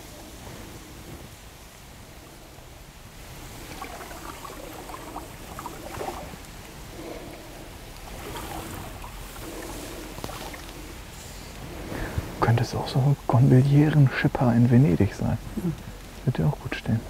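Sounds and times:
water lapping against boat hull: 3.1s - 12.2s.

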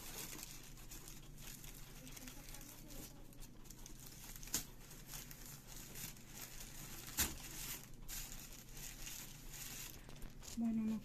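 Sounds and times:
paper flowers rustling and crinkling: 0.0s - 11.0s.

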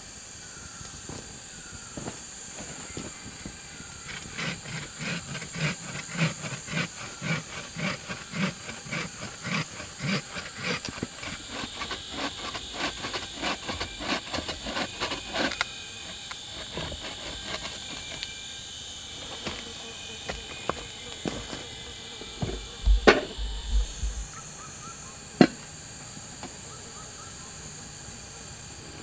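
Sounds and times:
saw cutting wood: 1.0s - 27.0s
wood cracking: 4.1s - 18.3s.

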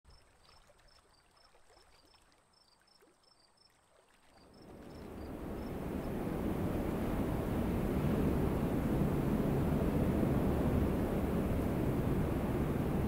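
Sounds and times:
soft rushing swell: 5.1s - 13.0s.

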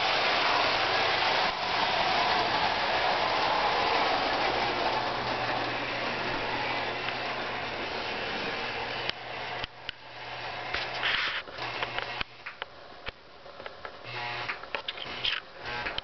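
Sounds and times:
toy train whirring: 0.0s - 8.6s.

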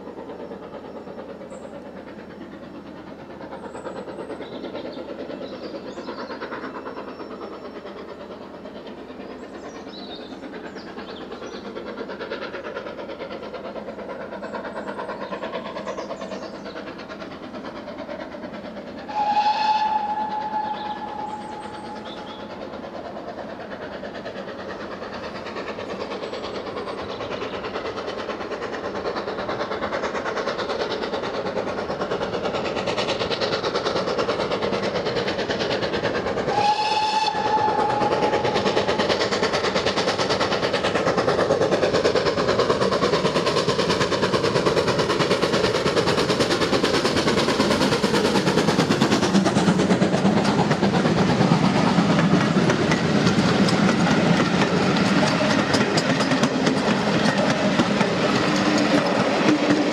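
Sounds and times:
steam locomotive exhaust: 0.0s - 59.9s
steam whistle blasts: 19.1s - 21.9s, 36.5s - 38.8s.

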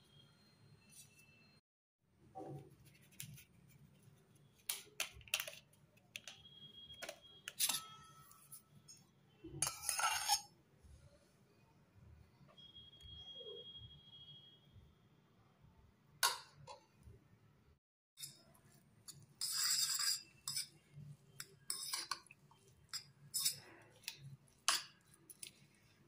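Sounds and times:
utensils clinking against bowl: 7.0s - 8.5s, 9.6s - 10.5s, 21.4s - 25.6s.

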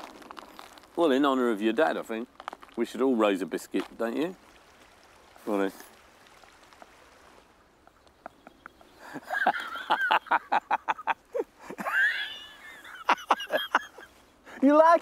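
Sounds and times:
men laughing: 8.2s - 14.2s.

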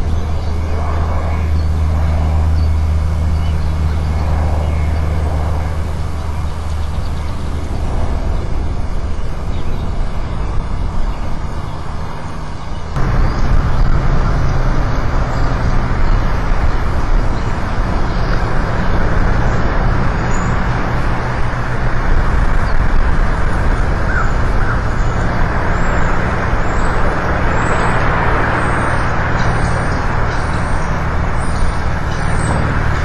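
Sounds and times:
low hum: 0.0s - 33.0s
rushing outdoor noise: 0.0s - 33.0s.

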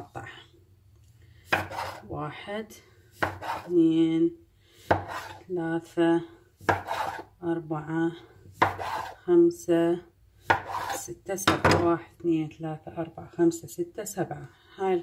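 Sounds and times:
knife chopping on worktop: 1.5s - 2.0s, 3.2s - 3.7s, 4.9s - 5.4s, 6.6s - 7.3s, 8.6s - 9.2s, 10.4s - 11.8s.

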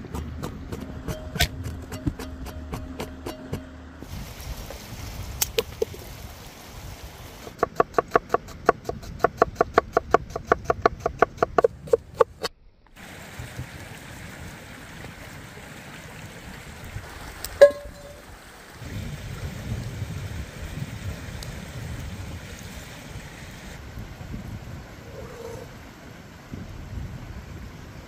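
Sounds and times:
stream running: 4.0s - 7.7s, 13.0s - 28.0s.

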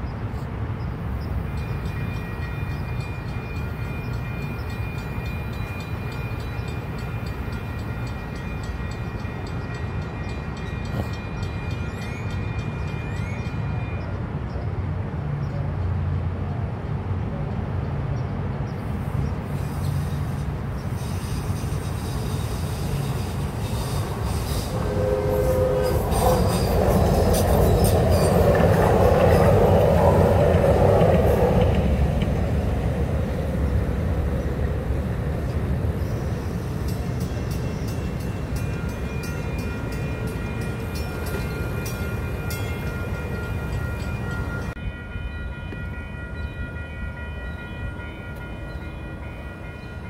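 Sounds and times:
train rumbling past: 0.0s - 50.0s
crossing bell ringing: 1.4s - 14.2s, 21.4s - 50.0s
train horn: 21.0s - 28.6s.

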